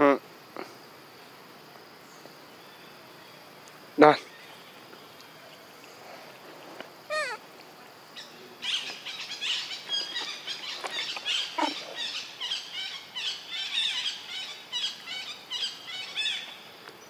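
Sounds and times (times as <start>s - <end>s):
lower falling animal call: 7.0s - 7.5s
high-pitched animal chirps: 7.1s - 7.4s.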